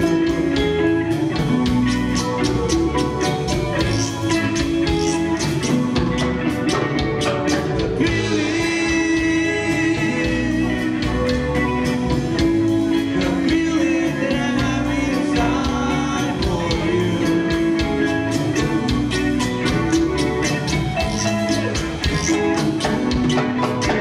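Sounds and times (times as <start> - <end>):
drum kit: 0.0 - 24.0
electric guitars: 0.0 - 24.0
latin percussion: 0.0 - 24.0
people singing: 8.0 - 11.5, 13.0 - 21.3.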